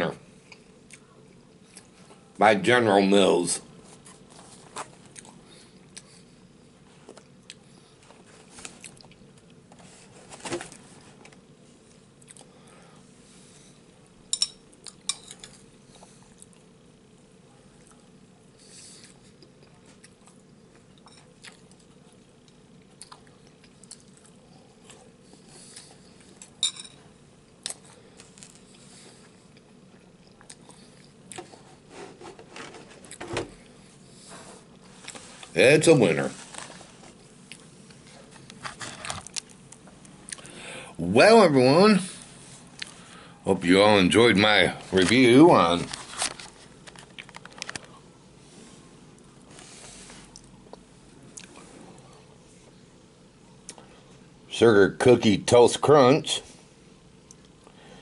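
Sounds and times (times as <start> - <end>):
faint steady hum: 0.0 - 58.0
chewing and crunching: 7.0 - 9.6, 11.8 - 12.6, 18.8 - 26.6, 27.6 - 31.6.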